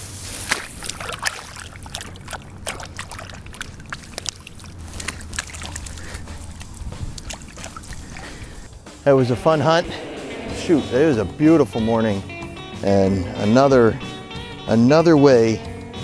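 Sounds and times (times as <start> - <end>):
dry grass crackling: 0.0 - 8.7.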